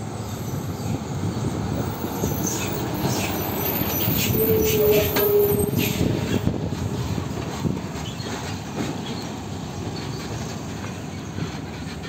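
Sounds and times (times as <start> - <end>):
tyres on road: 0.0 - 12.0.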